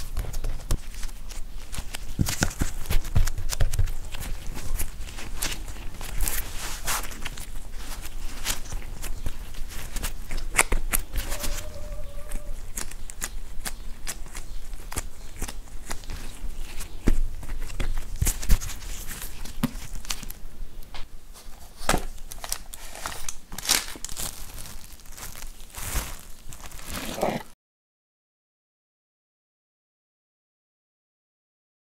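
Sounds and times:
dough pressing and slapping: 0.0 - 27.5
plastic gloves crinkling: 0.0 - 27.5.

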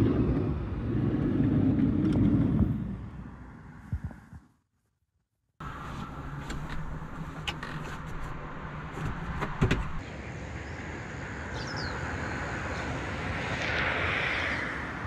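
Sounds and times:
outdoor background noise: 0.0 - 4.6, 5.6 - 15.0
sliding door thumping shut: 9.0 - 10.0.

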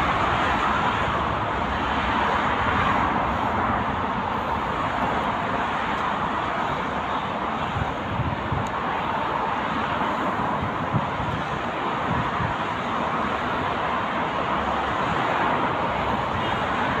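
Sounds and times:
jet engines at takeoff: 0.0 - 17.0.

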